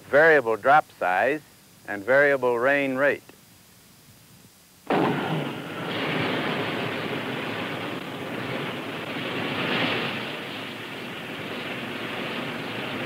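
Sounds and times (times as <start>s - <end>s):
rocket sled roaring: 4.9s - 13.0s.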